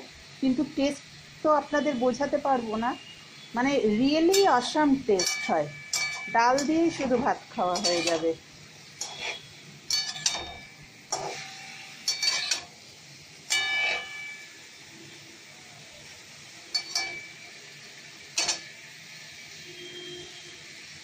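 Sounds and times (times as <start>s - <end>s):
metal spatula clinking on pan: 4.3s - 7.1s, 7.7s - 8.4s, 9.0s - 12.7s, 13.5s - 14.4s, 16.7s - 17.4s, 18.4s - 18.7s.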